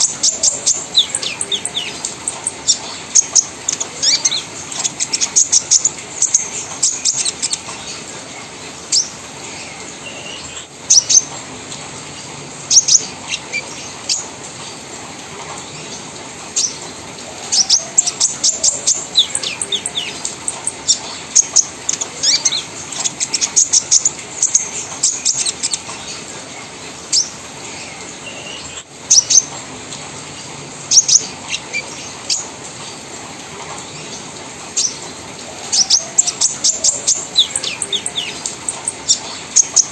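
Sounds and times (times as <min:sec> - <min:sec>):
bird chattering song: 0:00.0 - 0:07.8, 0:17.5 - 0:26.3, 0:35.7 - 0:39.9.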